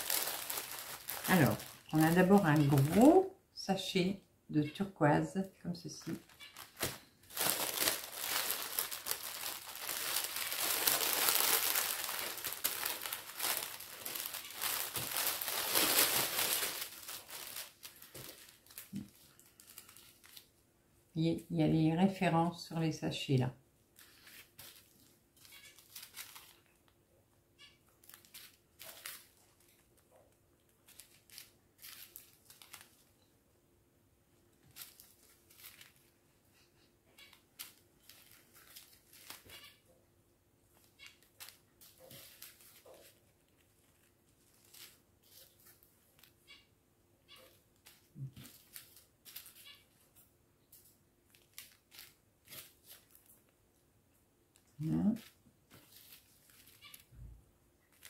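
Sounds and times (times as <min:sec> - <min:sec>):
plastic bags crinkling: 0:00.0 - 0:03.2, 0:06.1 - 0:20.6, 0:24.0 - 0:26.8, 0:28.0 - 0:29.9, 0:30.8 - 0:33.2, 0:34.6 - 0:36.2, 0:37.3 - 0:39.7, 0:40.8 - 0:46.4, 0:47.4 - 0:50.0, 0:51.3 - 0:53.5, 0:54.9 - 0:57.2.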